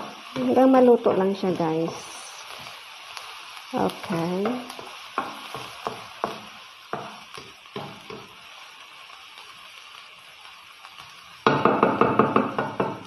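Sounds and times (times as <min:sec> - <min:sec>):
low frying sizzle: 0:00.0 - 0:13.0.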